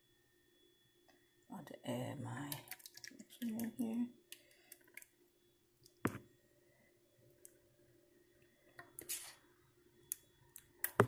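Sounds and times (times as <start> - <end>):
egg mixture pouring into pan: 2.6 - 3.7.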